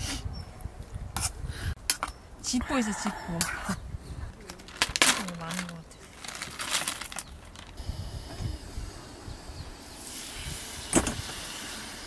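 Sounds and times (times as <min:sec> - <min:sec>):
gear rustling and scraping: 0:04.4 - 0:07.8.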